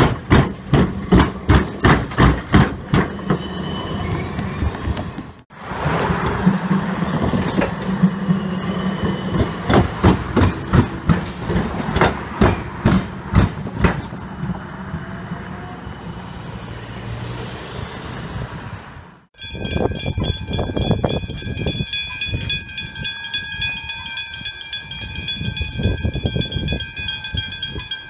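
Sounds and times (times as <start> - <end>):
tram wheels clacking over rails: 0.0 - 15.7
tram running hum: 0.0 - 28.0.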